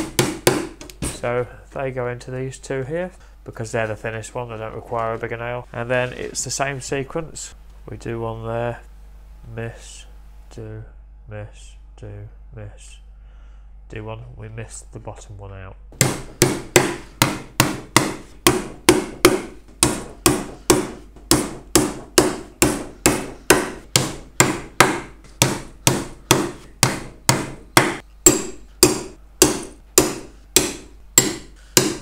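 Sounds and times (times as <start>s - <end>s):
hammer driving nails into wood: 0.0s - 0.9s, 16.0s - 32.0s.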